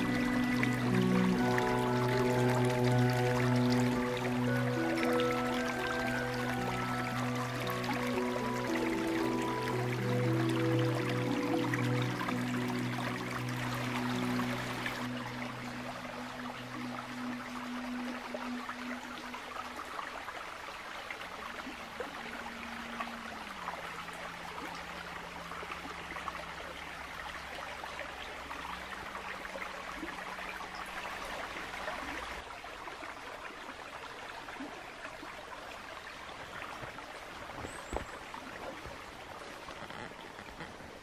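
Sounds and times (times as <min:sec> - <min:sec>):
low held tone: 0:00.0 - 0:19.6
running water rushing: 0:00.0 - 0:41.0.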